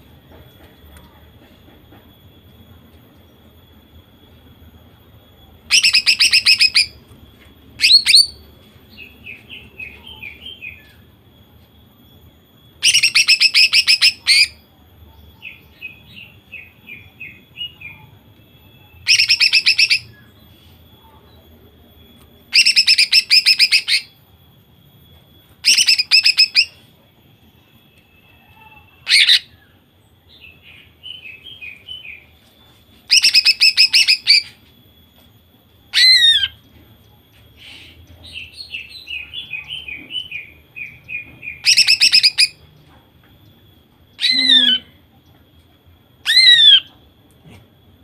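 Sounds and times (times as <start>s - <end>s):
bird rapid-fire song bursts: 5.7s - 7.0s
soft bird twittering: 43.4s - 45.0s.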